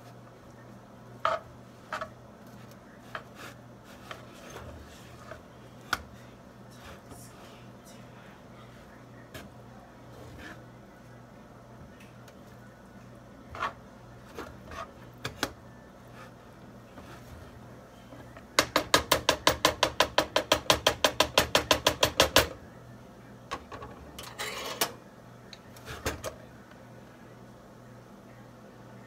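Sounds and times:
wooden spoon knocking skillet: 18.6s - 22.5s.

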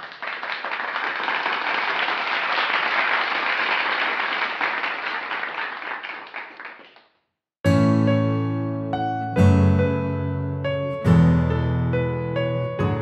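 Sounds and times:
audience applause: 0.0s - 7.1s.

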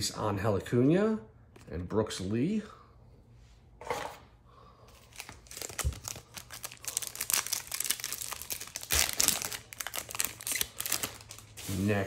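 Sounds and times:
plastic wrapper crinkling and tearing: 5.0s - 11.9s.

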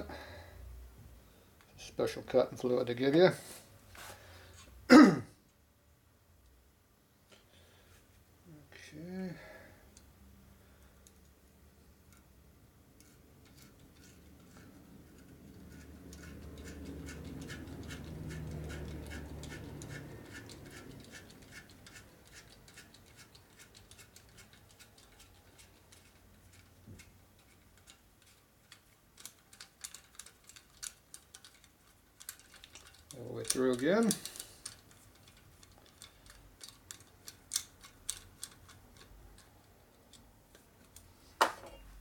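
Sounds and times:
hand ratchet clicking: 13.0s - 26.7s.

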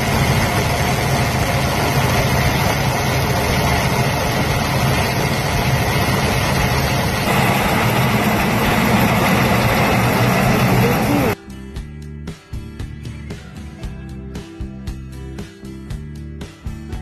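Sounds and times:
heavy engine running: 0.0s - 11.4s
music: 9.0s - 17.0s.

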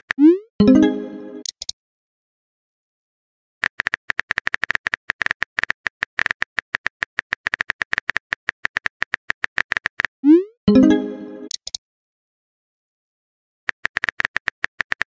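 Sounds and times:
phone keyboard typing clicks: 3.6s - 10.1s, 11.5s - 11.8s, 13.7s - 15.0s.

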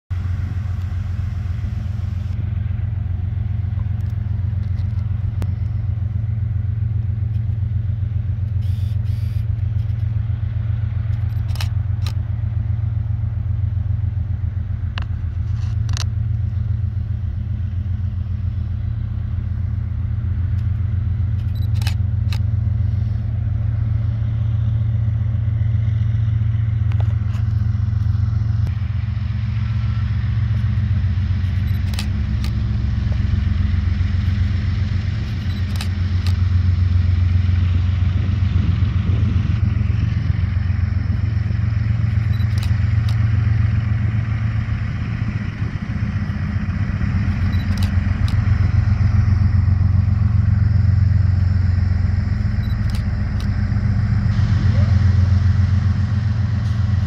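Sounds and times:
locomotive engine rumbling: 0.1s - 57.0s
sharp clicks: 35.2s - 36.4s, 42.1s - 43.2s.

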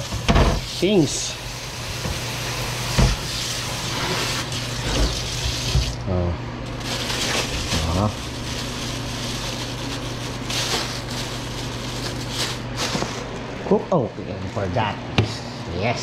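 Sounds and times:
water spraying into steel sink: 0.0s - 6.0s.

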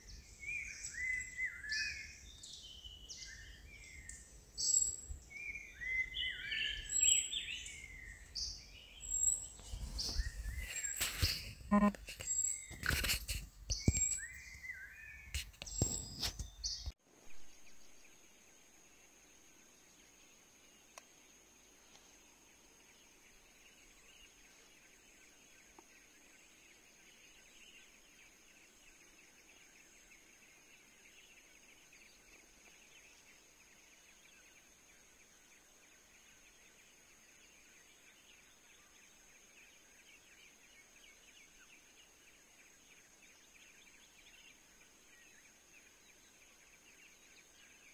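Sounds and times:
faint bird calls: 9.0s - 16.3s.

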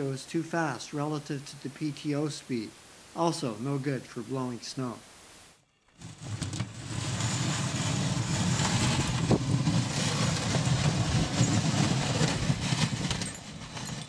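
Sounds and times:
blade scraping snow: 6.0s - 14.0s
tractor engine running: 6.8s - 13.8s.

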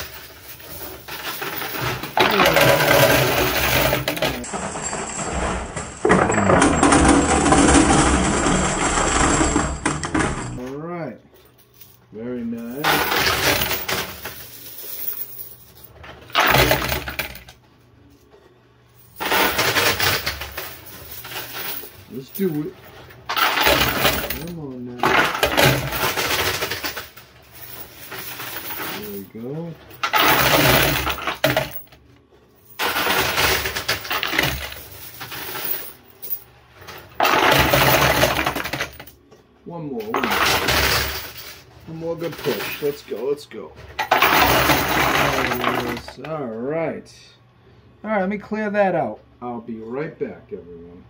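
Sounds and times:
coins clattering in machine: 0.0s - 10.7s, 11.7s - 17.6s, 19.0s - 39.2s, 40.0s - 46.2s.

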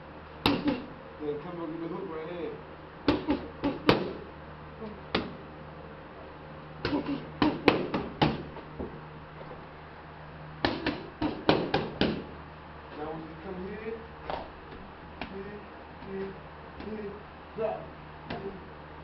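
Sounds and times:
boxing gloves smacking pads: 0.4s - 0.9s, 3.1s - 4.3s, 5.1s - 5.4s, 6.8s - 8.6s, 10.6s - 12.3s.

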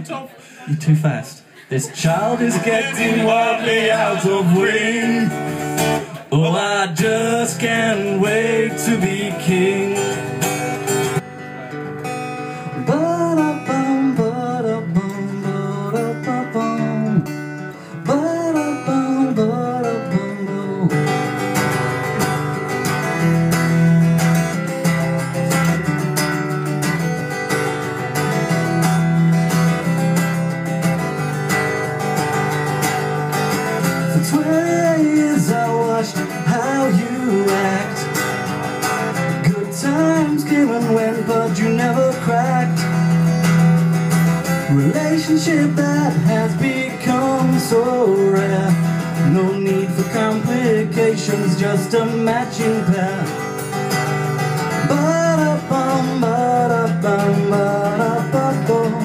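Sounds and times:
acoustic guitar strumming: 0.4s - 59.0s
man singing: 0.6s - 10.9s, 12.6s - 21.4s, 34.0s - 38.5s, 39.1s - 43.3s, 44.6s - 53.5s, 54.8s - 59.0s.

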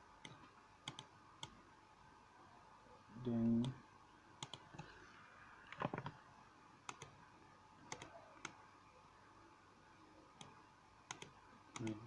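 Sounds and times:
computer mouse clicks: 0.2s - 1.6s, 4.4s - 4.9s, 6.8s - 7.2s, 7.9s - 8.6s, 10.4s - 12.0s.

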